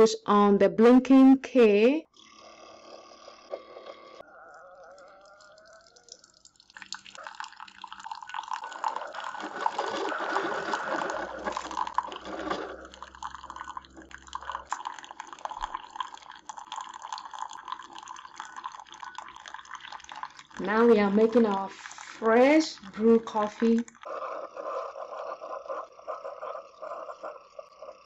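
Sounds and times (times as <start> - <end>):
coffee maker brewing: 2.1 - 28.0
coffee pouring into a mug: 4.3 - 24.2.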